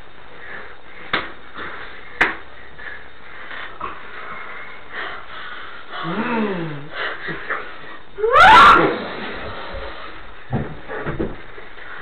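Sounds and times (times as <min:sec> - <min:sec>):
person groaning: 0:06.0 - 0:07.0.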